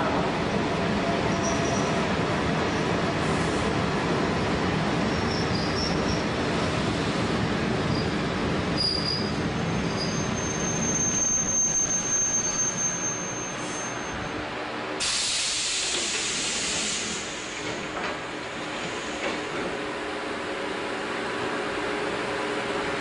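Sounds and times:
train rumble: 0.0s - 23.0s
high brake squeal: 1.3s - 2.0s, 5.2s - 6.2s, 7.9s - 14.4s
compressed air hiss: 15.0s - 17.7s.

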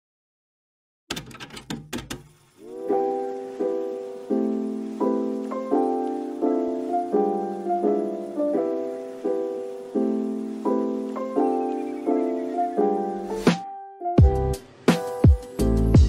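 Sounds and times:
soft piano chords: 2.3s - 16.0s.

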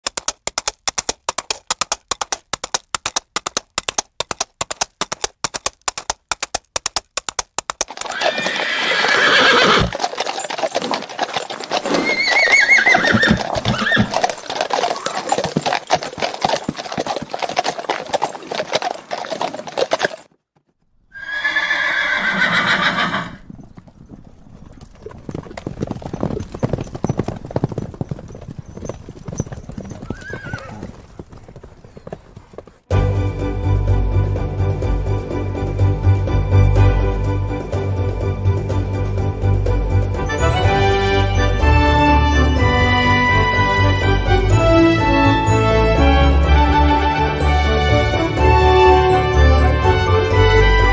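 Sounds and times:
horses galloping hoofbeats: 0.0s - 50.9s
horse neighing: 8.0s - 16.0s, 21.1s - 23.5s, 30.0s - 30.9s.

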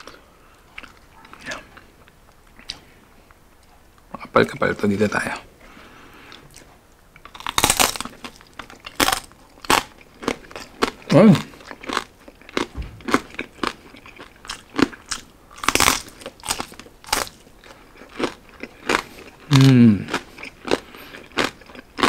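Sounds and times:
crunchy chewing of crispy pork: 0.0s - 3.0s, 6.2s - 22.0s
person humming briefly: 19.5s - 20.1s.

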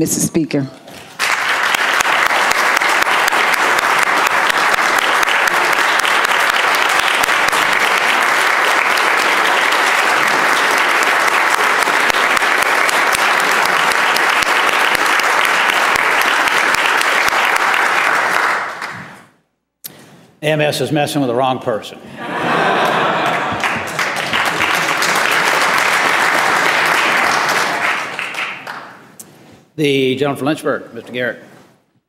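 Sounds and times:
crowd applauding: 1.0s - 19.2s, 22.2s - 29.1s.

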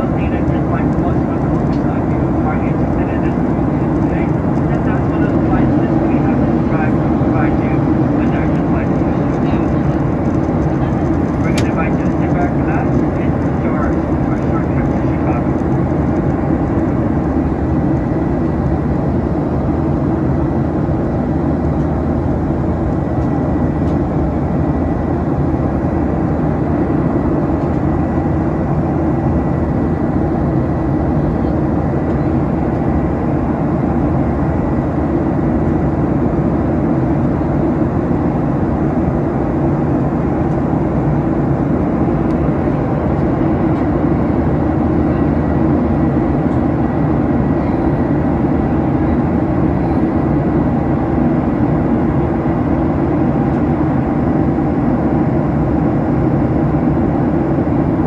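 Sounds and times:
jet engines running in cabin: 0.0s - 58.0s.

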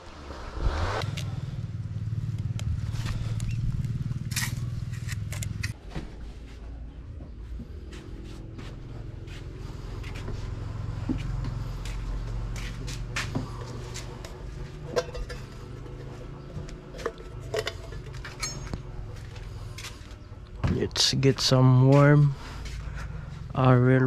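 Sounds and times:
low rumble: 0.0s - 5.8s
low hum: 0.0s - 23.9s
footsteps: 2.6s - 23.7s
knocks and scrapes of handling: 12.5s - 20.0s.

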